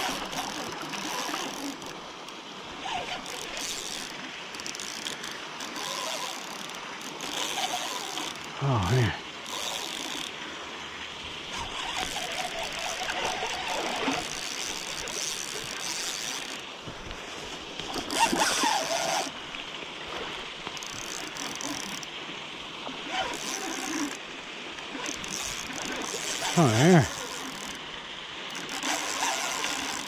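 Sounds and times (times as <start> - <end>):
fishing reel cranking: 0.0 - 2.0, 2.8 - 8.5, 9.4 - 10.3, 11.5 - 16.6, 17.9 - 19.4, 20.8 - 22.1, 23.0 - 24.2, 25.0 - 27.8, 28.5 - 30.0
river flowing: 0.0 - 30.0.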